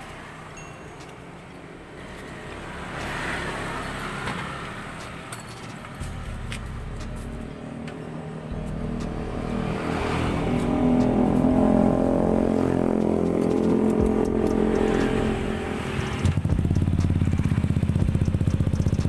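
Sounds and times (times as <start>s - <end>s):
motor scooter engine revving: 8.5s - 19.0s.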